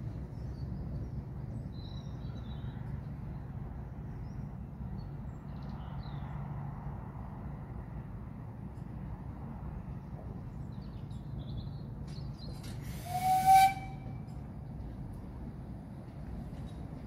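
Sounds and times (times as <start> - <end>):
steam locomotive whistle blast: 12.9 - 14.2.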